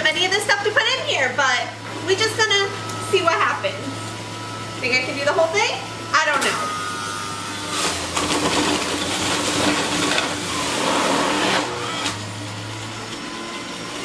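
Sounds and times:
juicer grinding vegetable: 0.0 - 14.0
juicer motor hum: 0.0 - 14.0.

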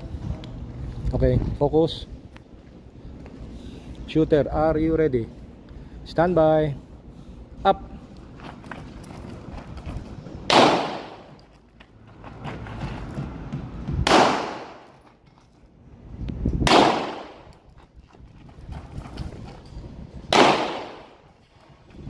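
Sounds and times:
pistol shots echoing: 10.5 - 11.3, 14.1 - 14.9, 16.7 - 17.5, 20.3 - 21.2.

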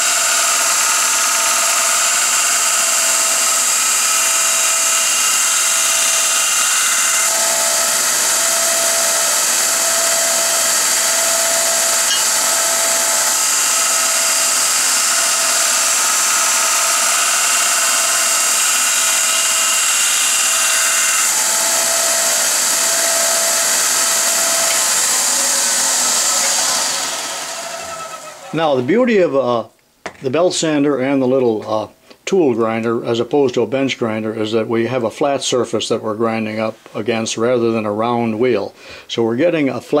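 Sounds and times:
belt sander grinding steel: 0.0 - 29.0.

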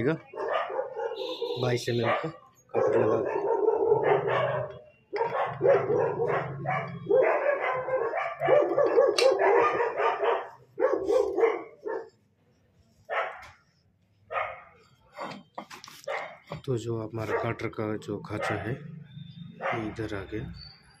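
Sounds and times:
dog barking: 0.2 - 12.2, 13.1 - 13.6, 14.3 - 14.9, 16.0 - 16.5, 17.2 - 17.7, 18.3 - 18.9, 19.5 - 20.0.

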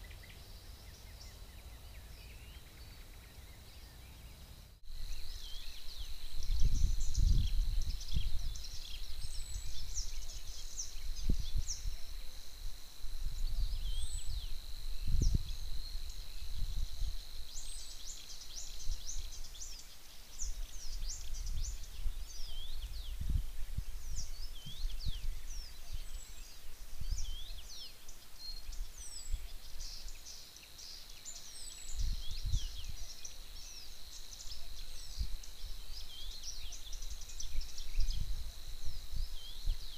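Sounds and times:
songbirds singing and chirping: 0.0 - 39.9
wind gusting on microphone: 4.9 - 17.8, 20.4 - 27.7, 31.8 - 33.1, 34.6 - 39.9.

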